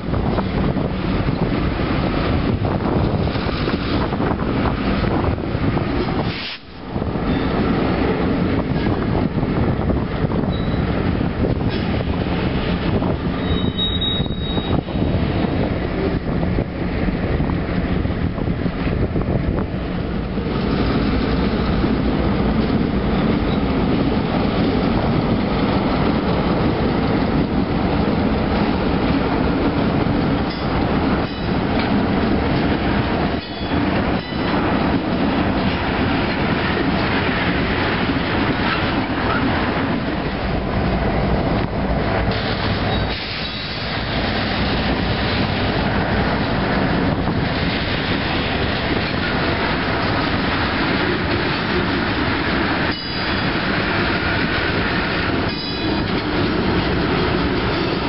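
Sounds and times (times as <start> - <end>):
diesel locomotives passing: 0.0 - 58.0
train wheel noise: 0.0 - 58.0
clanks over rail joints: 11.6 - 12.1, 30.4 - 40.2, 47.2 - 58.0.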